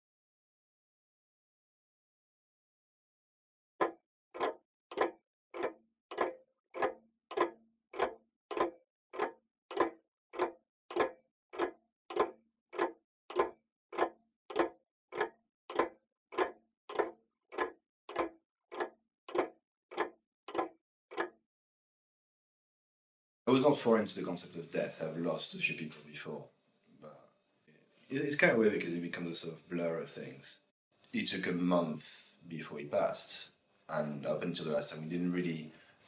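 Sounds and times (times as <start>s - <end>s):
evenly spaced knocks: 3.8s - 21.3s.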